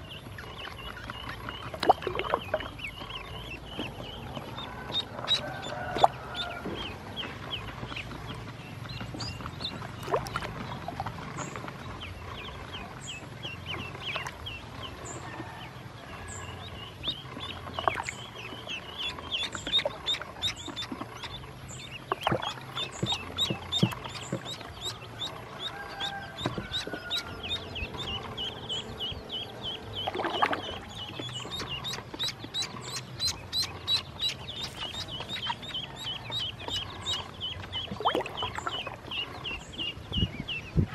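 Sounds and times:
ducklings peeping: 0:00.0 - 0:40.9
water splash: 0:22.1 - 0:23.1.

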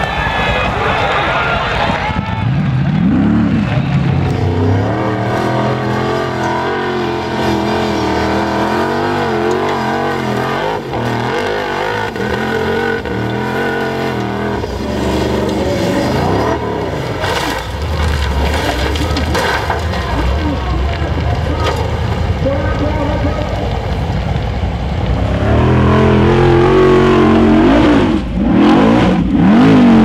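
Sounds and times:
buggy engine revving hard: 0:01.9 - 0:20.4, 0:25.0 - 0:30.0
knocks of buggy rolling over: 0:05.3 - 0:22.2.

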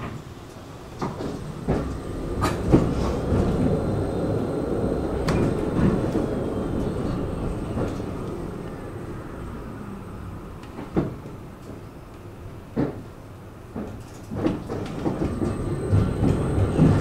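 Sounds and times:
tram rumbling on rails: 0:00.0 - 0:17.0
wheels knocking on track: 0:01.0 - 0:08.8, 0:13.7 - 0:17.0.

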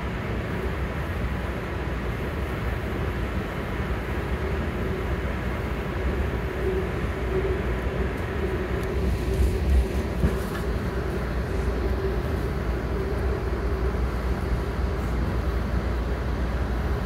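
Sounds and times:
faint steady hum: 0:00.0 - 0:17.0
train rumble from inside: 0:00.0 - 0:17.0.

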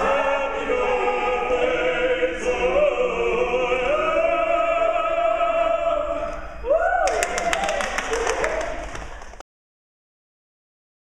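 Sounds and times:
group operatic singing: 0:00.0 - 0:06.8.

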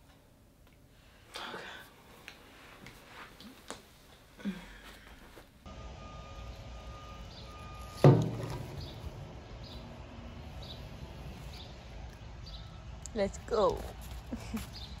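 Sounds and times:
loud thump with low ring: 0:08.0 - 0:08.9.

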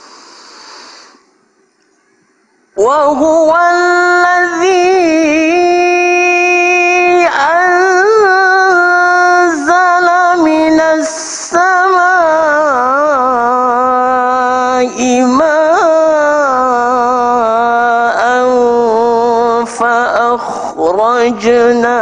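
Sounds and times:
man chanting melodically: 0:02.8 - 0:22.0.

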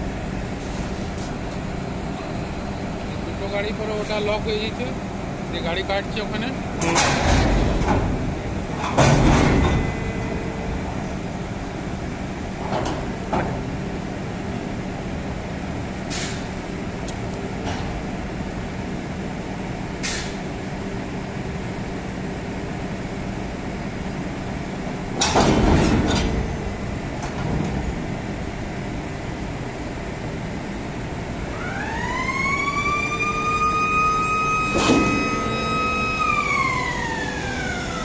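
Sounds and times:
machinery humming: 0:00.0 - 0:38.0
knocks and clatter: 0:06.8 - 0:10.0, 0:25.2 - 0:26.5.

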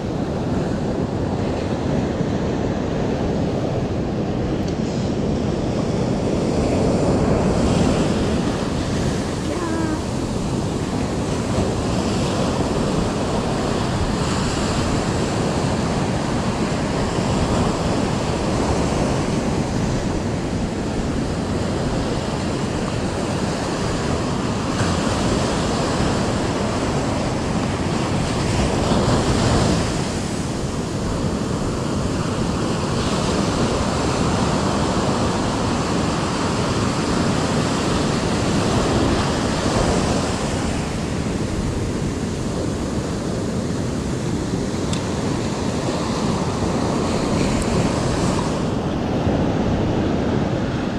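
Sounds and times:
surf breaking on a beach: 0:00.0 - 0:50.9
wind buffeting microphone: 0:00.0 - 0:50.9.

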